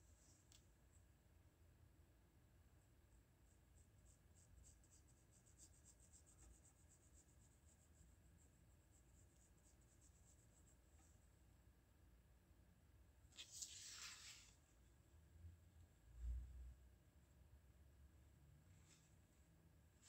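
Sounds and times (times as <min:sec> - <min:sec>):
pencil scratching on paper: 0:03.7 - 0:11.0.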